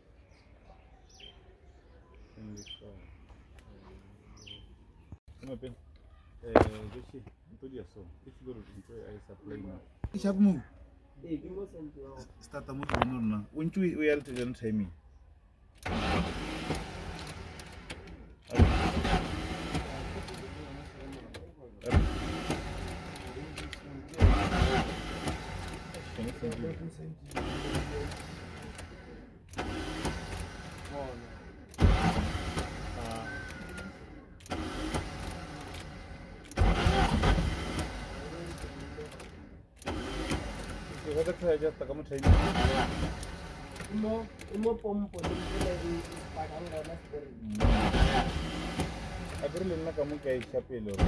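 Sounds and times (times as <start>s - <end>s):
car starter motor cranking: 12.4s - 14.9s, 15.7s - 51.0s.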